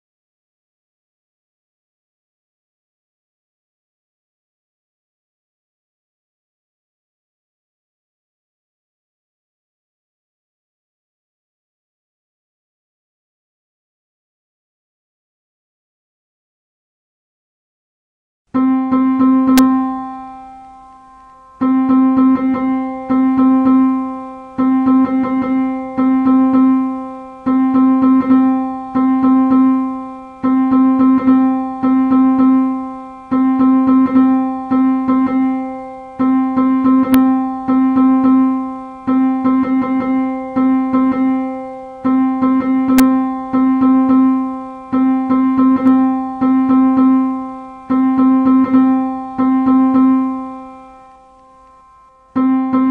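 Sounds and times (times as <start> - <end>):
keyboard note struck repeatedly: 18.6 - 52.9.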